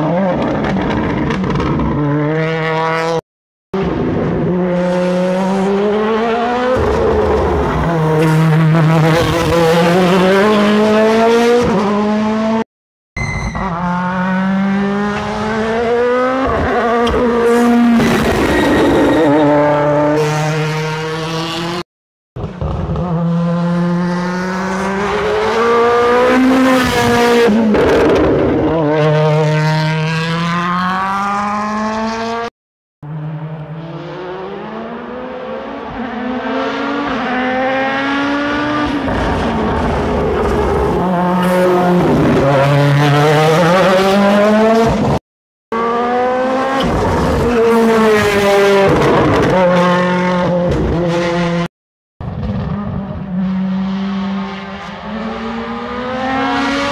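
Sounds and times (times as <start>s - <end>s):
rally car engine at full throttle: 0.0s - 3.2s, 3.8s - 12.6s, 13.2s - 21.8s, 22.4s - 56.9s.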